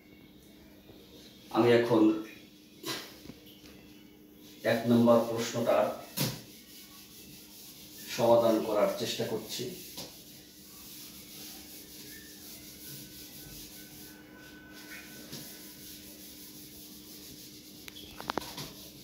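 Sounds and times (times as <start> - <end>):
eraser scrubbing whiteboard: 4.5 - 19.0.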